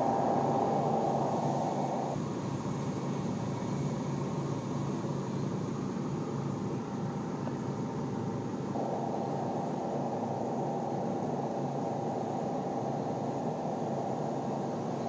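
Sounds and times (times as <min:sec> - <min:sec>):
machine hum: 0:00.0 - 0:04.5, 0:08.5 - 0:15.0.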